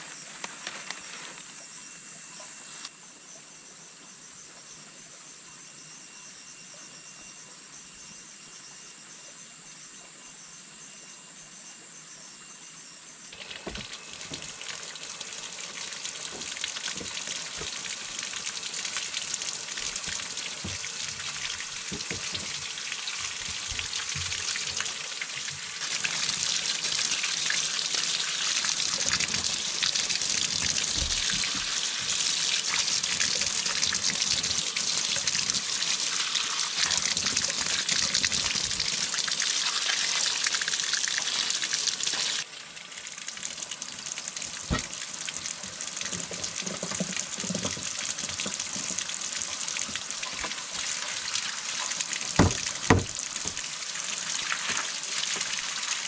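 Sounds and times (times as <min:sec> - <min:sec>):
running water splashing: 0:13.4 - 0:56.0.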